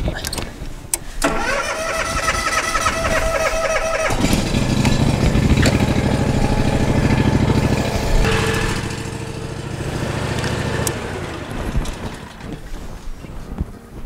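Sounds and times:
riding lawn mower engine: 0:01.2 - 0:13.5.

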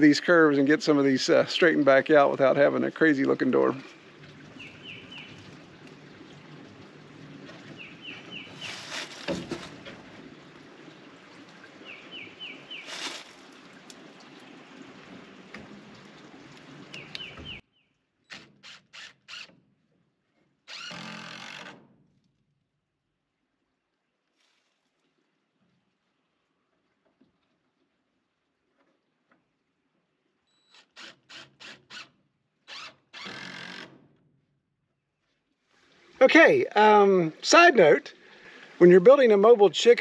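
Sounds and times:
outdoor background noise: 0:00.0 - 0:40.0
songbird chirping: 0:01.3 - 0:05.6, 0:07.5 - 0:09.7, 0:10.8 - 0:13.3, 0:16.9 - 0:18.0
cordless drill running: 0:32.8 - 0:33.8.

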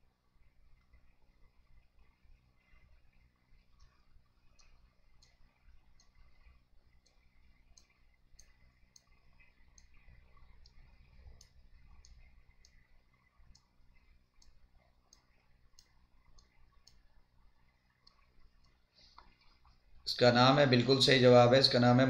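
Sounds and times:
low hum: 0:00.0 - 0:22.0
faint sharp clicks: 0:03.6 - 0:19.8.

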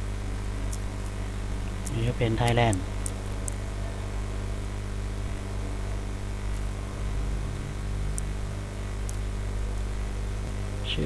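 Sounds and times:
electrical hum with hiss: 0:00.0 - 0:11.0.

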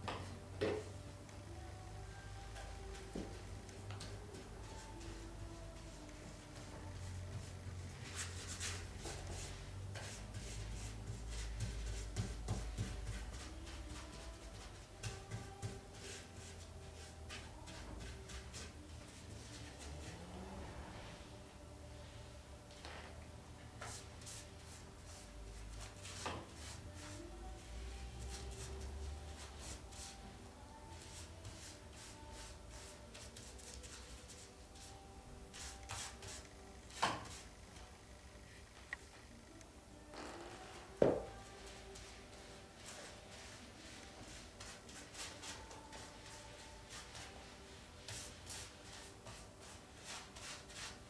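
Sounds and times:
paintbrush swishing: 0:04.0 - 0:21.3, 0:23.8 - 0:37.5, 0:41.4 - 0:51.0
brush scrape: 0:31.1 - 0:37.5, 0:41.6 - 0:51.0.

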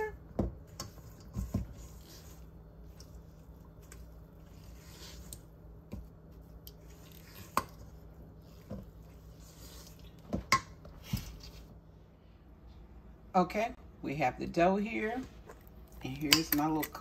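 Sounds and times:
spatula stirring thick dough: 0:00.0 - 0:11.9.

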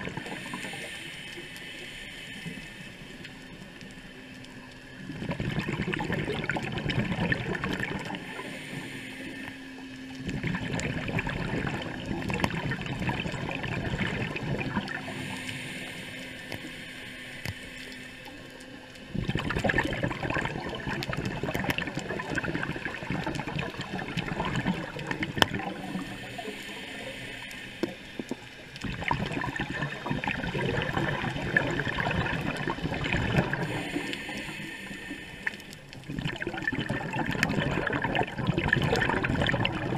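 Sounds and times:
diver's bubbles gurgling underwater: 0:00.0 - 0:01.0, 0:05.0 - 0:08.9, 0:10.1 - 0:15.7, 0:19.1 - 0:39.9
breathing through regulator: 0:00.0 - 0:03.7, 0:05.2 - 0:39.9.

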